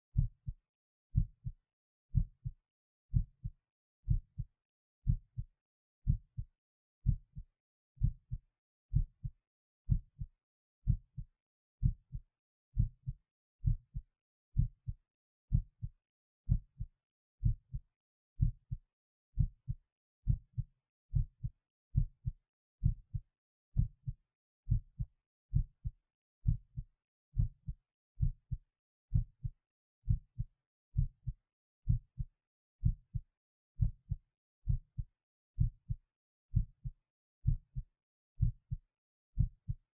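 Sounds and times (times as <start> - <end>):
heartbeat thumps: 5.0 - 5.4, 16.5 - 17.8, 21.2 - 23.2, 23.8 - 26.8, 27.4 - 28.4, 29.1 - 33.2, 33.8 - 35.0, 35.6 - 37.8, 38.4 - 38.8.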